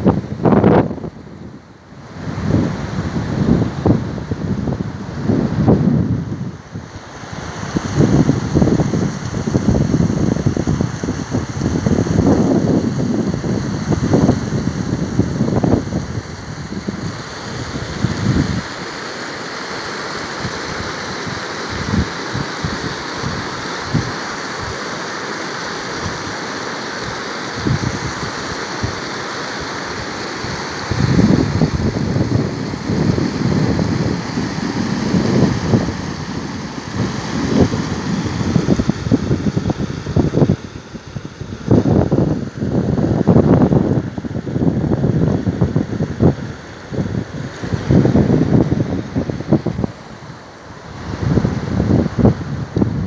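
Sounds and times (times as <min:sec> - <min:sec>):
wind buffeting microphone: 0:00.0 - 0:18.8, 0:27.6 - 0:29.0, 0:30.5 - 0:50.0, 0:50.8 - 0:53.0
flood water rushing: 0:01.9 - 0:53.0.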